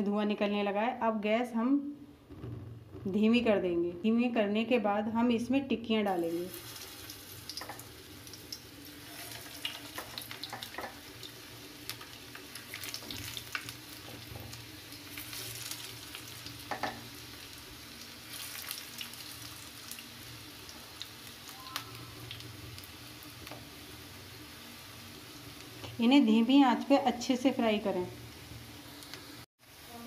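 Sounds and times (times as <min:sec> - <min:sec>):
patties sizzling in hot oil: 0:06.1 - 0:30.0.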